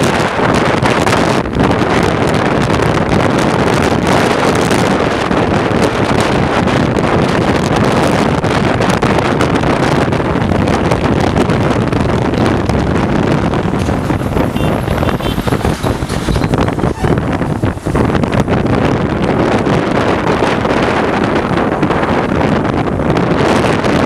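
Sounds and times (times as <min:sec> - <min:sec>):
road noise: 0:00.0 - 0:24.0
wind rushing over microphone: 0:00.0 - 0:24.0
motorcycle engine running: 0:12.2 - 0:19.2.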